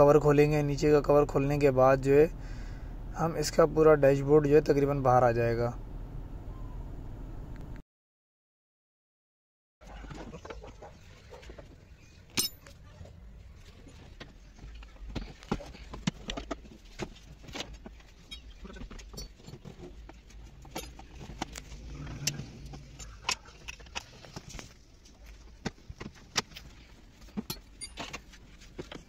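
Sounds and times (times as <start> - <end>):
low steady rumble: 0.0 - 7.8, 15.8 - 29.0
hand tools clicking and clinking: 12.3 - 12.8, 15.1 - 29.0.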